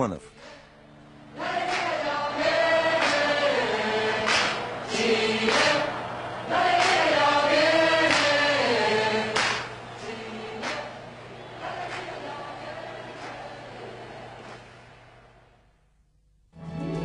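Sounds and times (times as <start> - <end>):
choir singing in unison: 1.3 - 14.7.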